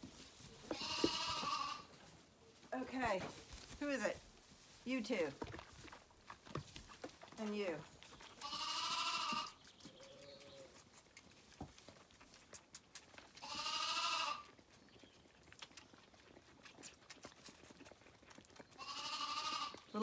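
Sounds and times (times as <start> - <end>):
lambs bleating: 0.7 - 1.9, 8.4 - 10.7, 13.4 - 14.5, 18.8 - 19.8.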